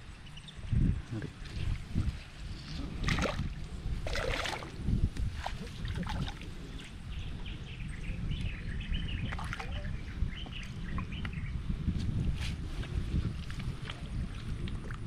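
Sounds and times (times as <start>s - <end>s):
birds chirping: 5.9s - 11.8s.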